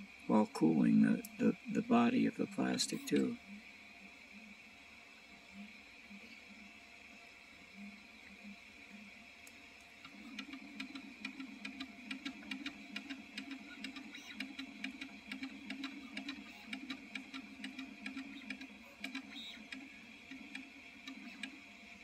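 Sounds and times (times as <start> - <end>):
printer humming and whining: 0.0 - 22.0
print head ticking: 1.2 - 3.4, 10.0 - 22.0.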